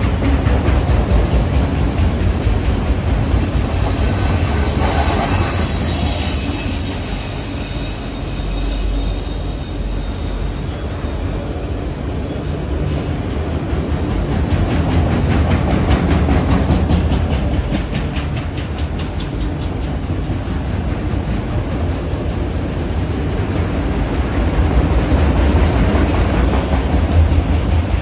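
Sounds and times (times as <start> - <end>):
train wheels rumbling on rail: 0.0 - 28.0
high wheel squeal: 3.4 - 12.6.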